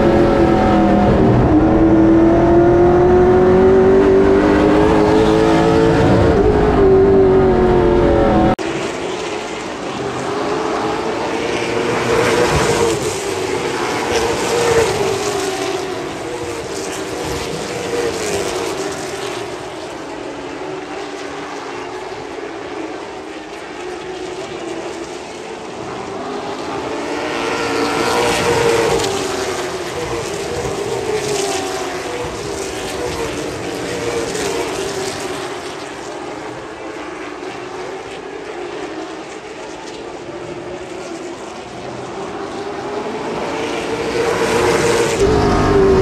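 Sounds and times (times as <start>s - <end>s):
stock car engine racing: 0.0s - 46.0s.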